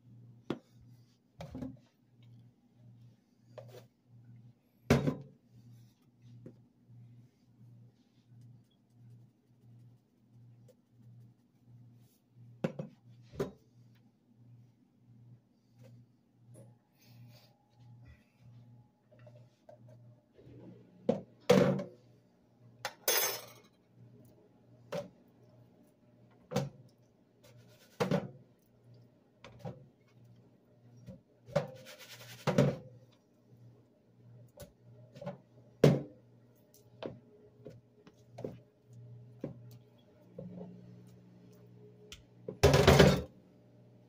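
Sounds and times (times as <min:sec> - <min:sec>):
faint low hum: 0:00.0 - 0:44.0.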